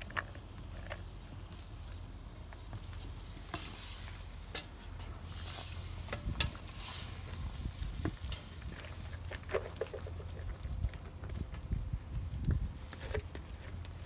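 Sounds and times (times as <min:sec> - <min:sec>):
meat sizzling: 0:02.8 - 0:09.4.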